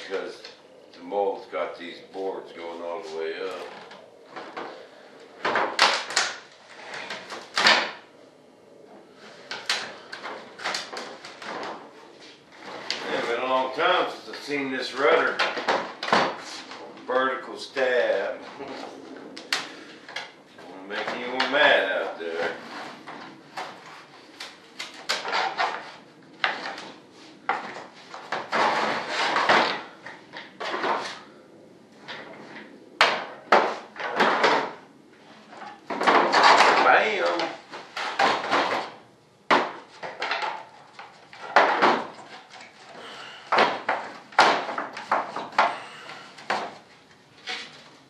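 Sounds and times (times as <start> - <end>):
sharp knocks and cracks: 5.4 - 8.1, 9.5 - 11.9, 15.0 - 16.9, 19.4 - 21.7, 22.4 - 31.2, 32.0 - 34.9, 35.5 - 47.8
scraping creaks: 9.1 - 31.4.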